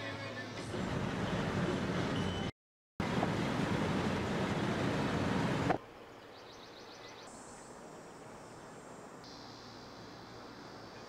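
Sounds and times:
insect chirring: 7.1 - 11.0.

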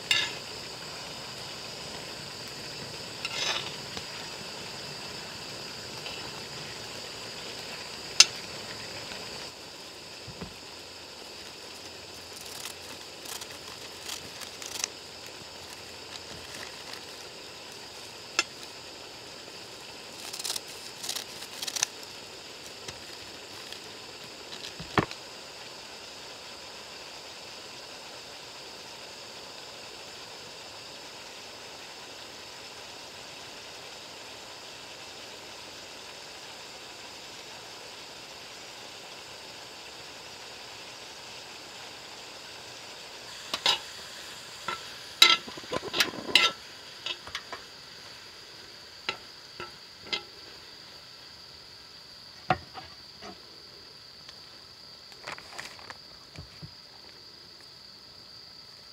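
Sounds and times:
food sizzling in a frying pan: 0.0 - 53.4
metal utensil clinking against pan: 44.7 - 47.5.

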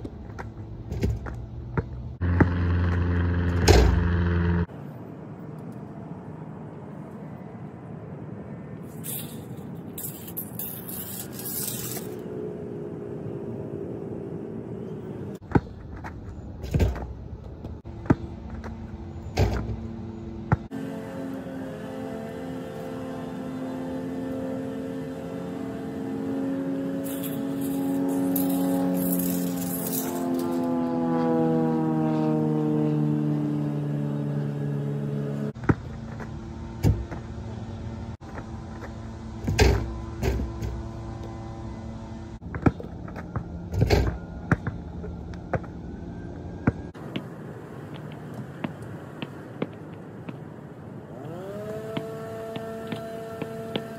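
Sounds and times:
low hum: 0.0 - 53.9
basketball bouncing on court: 0.9 - 3.8, 15.4 - 18.8, 20.5 - 20.7
ball banging on rim and backboard: 0.9 - 4.2.

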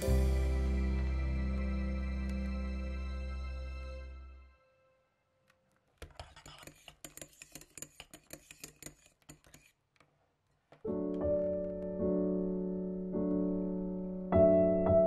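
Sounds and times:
gentle piano music: 0.0 - 4.4, 10.8 - 15.0.

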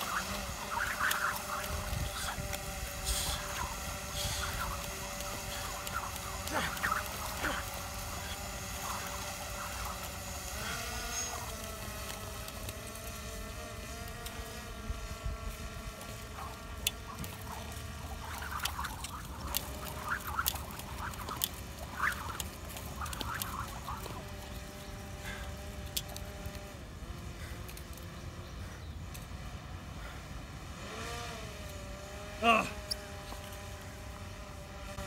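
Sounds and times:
skipping rope ticking on concrete: 0.0 - 13.5, 15.9 - 26.6.

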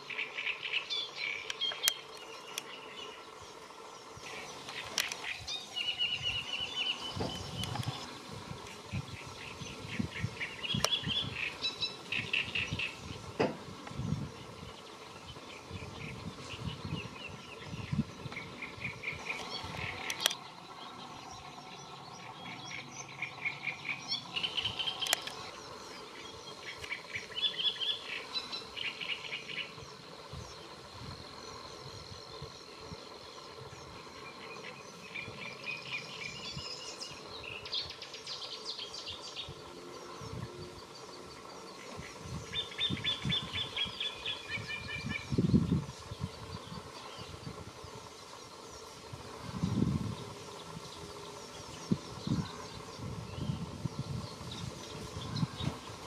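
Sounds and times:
small birds chattering: 0.0 - 56.0
sharp clicks: 4.6 - 5.3, 19.2 - 20.5, 24.8 - 25.6.

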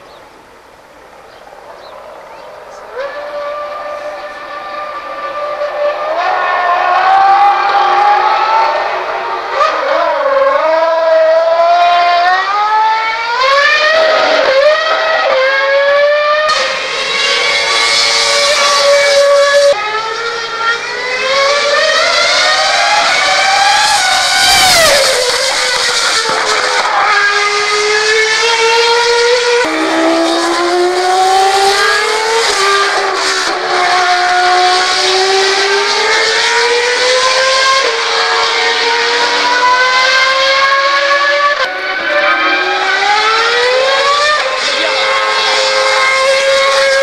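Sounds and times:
racing car engine at high revs: 1.0 - 47.0.

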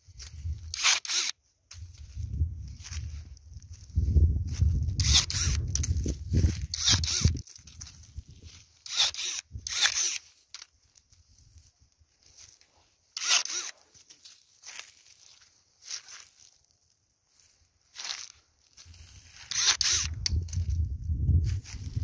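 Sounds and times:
wind buffeting microphone: 2.0 - 8.6, 20.0 - 22.0.

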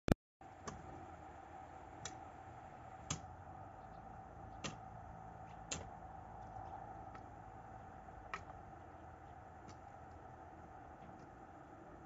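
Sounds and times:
faint steady hum: 0.4 - 12.0.

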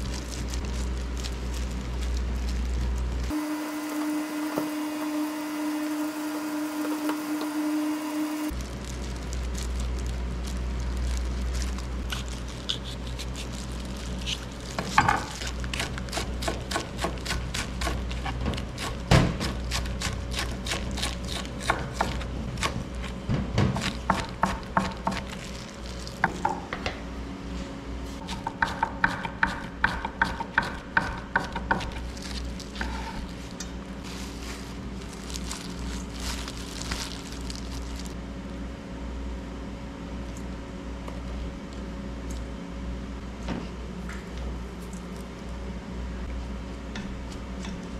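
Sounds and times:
knife chopping on wooden board: 23.6 - 25.3, 28.2 - 32.0.

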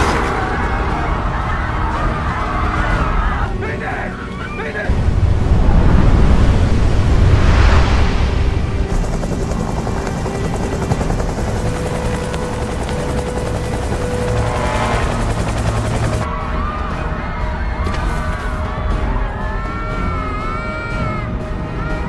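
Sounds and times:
helicopter rotor chop: 0.0 - 5.1, 6.1 - 16.3
dramatic orchestral music: 0.0 - 22.0.

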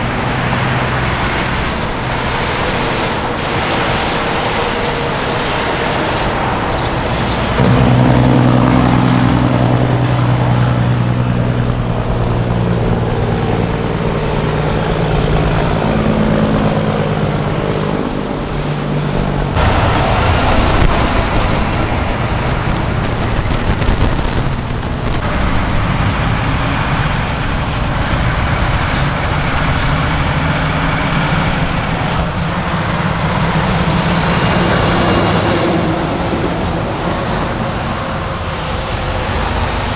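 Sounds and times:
diesel truck engines passing: 0.0 - 39.9
loud hiss: 19.6 - 25.2.

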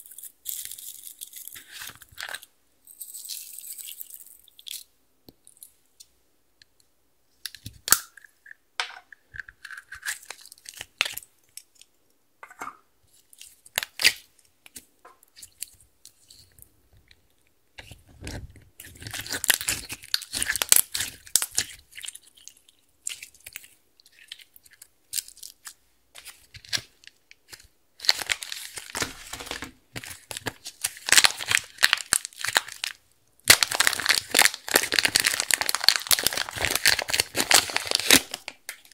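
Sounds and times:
hands squishing slime: 13.2 - 38.9
slime crackling and popping: 17.8 - 23.6, 27.5 - 38.9
plastic wrap crinkling: 26.2 - 38.9.

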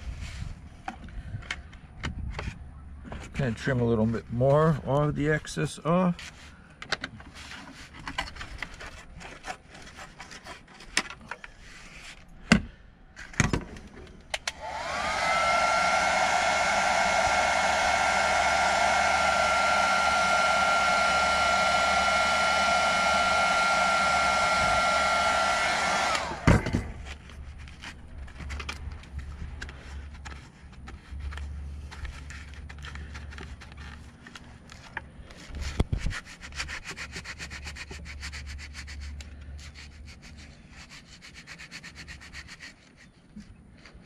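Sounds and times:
heat gun fan whine: 14.3 - 27.8
hot air rushing: 14.5 - 26.6.

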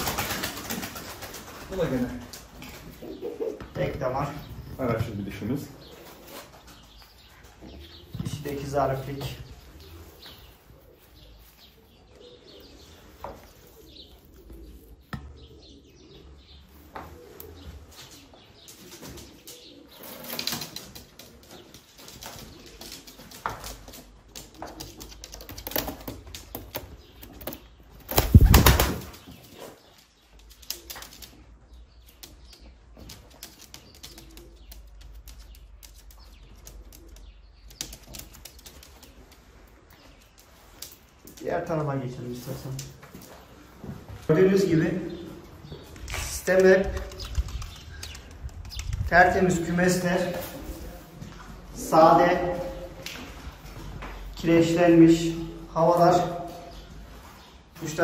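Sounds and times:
pigeon wings flapping: 0.0 - 2.5, 27.4 - 29.3.

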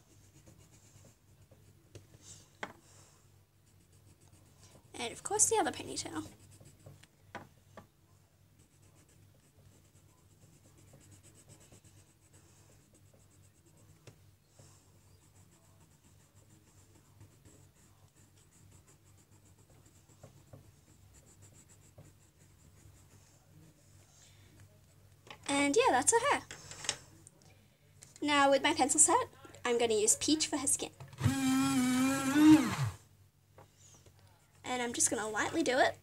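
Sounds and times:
pencil scratching on paper: 0.0 - 2.2, 3.6 - 7.1, 8.6 - 23.7.

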